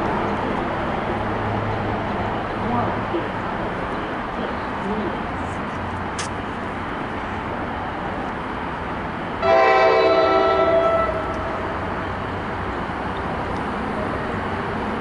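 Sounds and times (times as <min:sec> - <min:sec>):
steady background noise: 0:00.0 - 0:15.0
train horn blast: 0:09.4 - 0:11.8.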